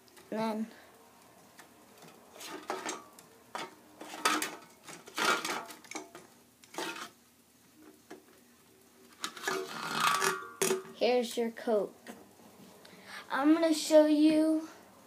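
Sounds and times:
plastic bricks scraping metal can: 0:02.3 - 0:03.0, 0:04.0 - 0:06.0, 0:06.7 - 0:07.2, 0:09.2 - 0:10.7.

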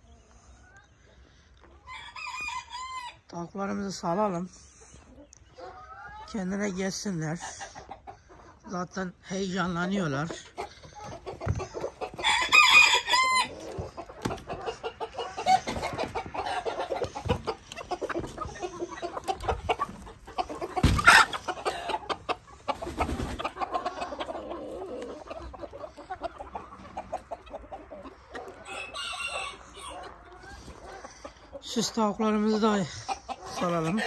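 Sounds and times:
chickens clucking and squawking: 0:00.0 - 0:34.0
loud pitched chicken call: 0:12.0 - 0:13.9, 0:20.5 - 0:22.2, 0:28.6 - 0:30.0.

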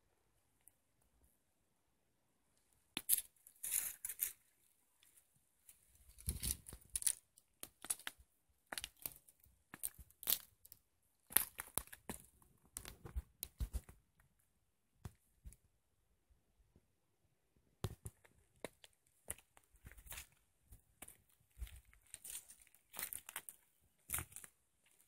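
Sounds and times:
footsteps crunching on stones: 0:18.6 - 0:20.4, 0:21.0 - 0:25.0.

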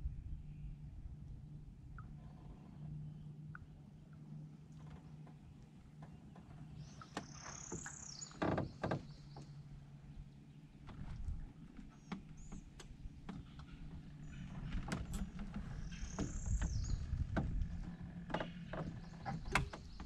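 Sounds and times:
low rumble: 0:00.0 - 0:07.0, 0:12.4 - 0:20.0
bird chirps: 0:15.7 - 0:17.2.

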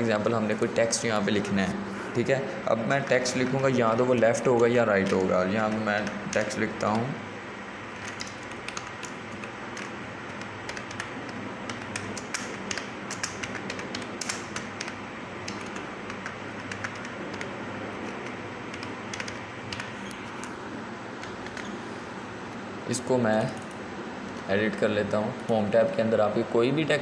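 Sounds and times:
keyboard key clicks: 0:11.7 - 0:20.1.

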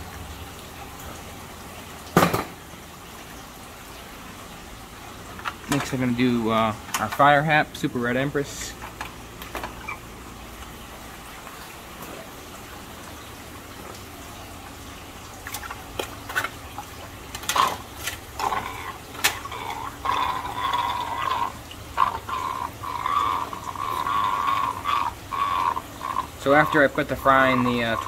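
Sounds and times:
water pouring and splashing: 0:00.0 - 0:28.0
sharp knocks: 0:02.2 - 0:02.6.

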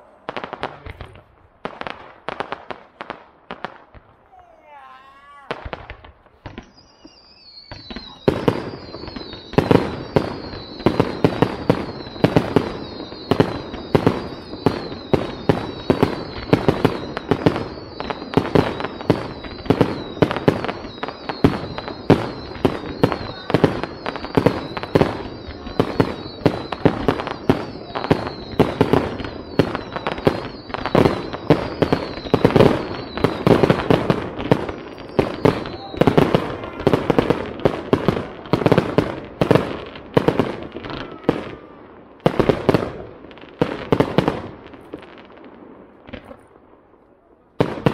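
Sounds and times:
fireworks bangs: 0:00.0 - 0:47.9
high steady whistle: 0:06.6 - 0:33.8.

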